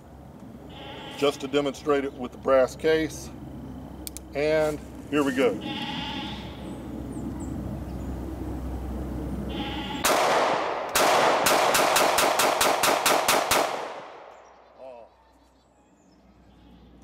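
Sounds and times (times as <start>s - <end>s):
pistol shots: 10.0s - 14.4s.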